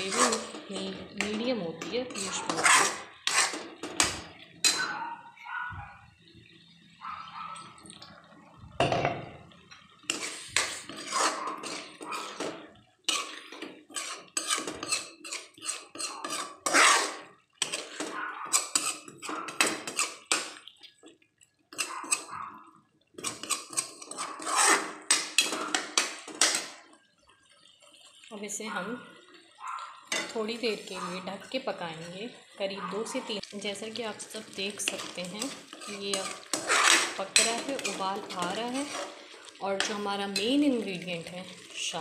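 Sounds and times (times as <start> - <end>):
metal spoon scraping metal pan: 0.0 - 5.0, 10.1 - 20.6, 21.7 - 22.4, 23.2 - 26.8, 34.7 - 41.0.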